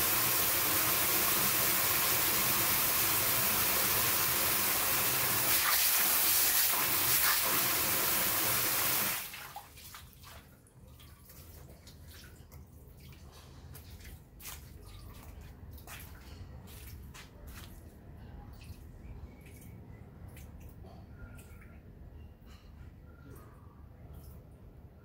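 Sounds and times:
water jet splashing into basin: 0.0s - 10.4s
water dripping into basin: 18.5s - 22.0s, 23.2s - 24.7s.

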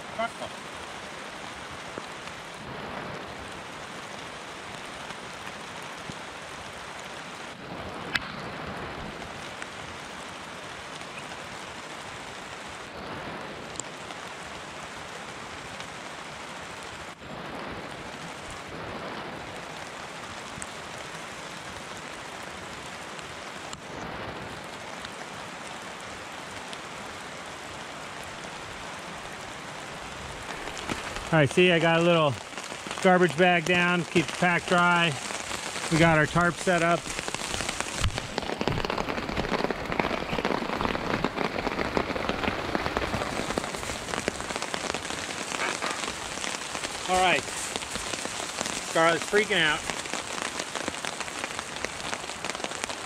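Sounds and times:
steady rain in forest: 0.0s - 53.0s.

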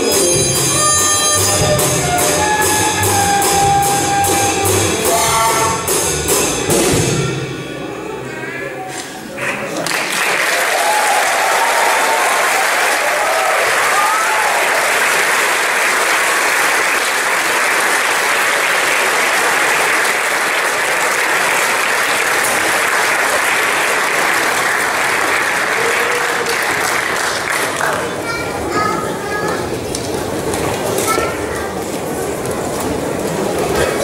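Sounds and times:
audience applauding: 9.4s - 28.8s.

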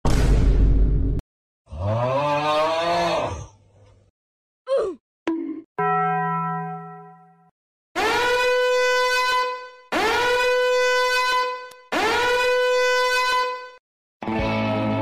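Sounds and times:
horn-like blast: 8.0s - 13.8s
music: 14.2s - 15.0s.

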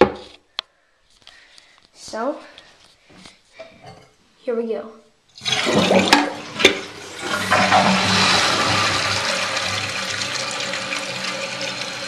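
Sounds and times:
toilet flushing: 5.4s - 12.0s.

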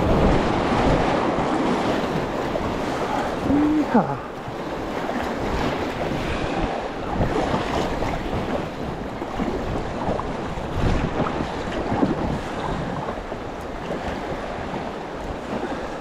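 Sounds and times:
river rapids rushing: 0.0s - 4.4s
water splashing: 0.0s - 12.9s.

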